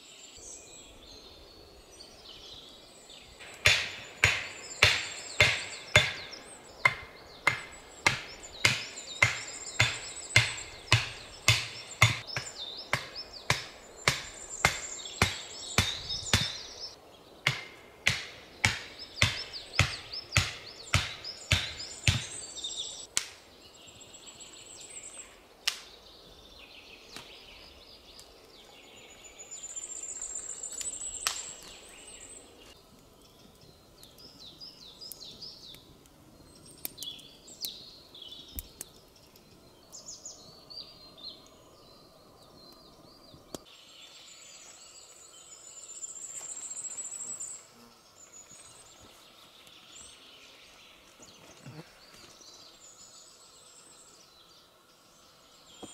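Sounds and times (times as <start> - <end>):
high thin trilled birdsong: 0.0 - 55.9
sharp knocks: 3.5 - 16.6, 17.4 - 22.3.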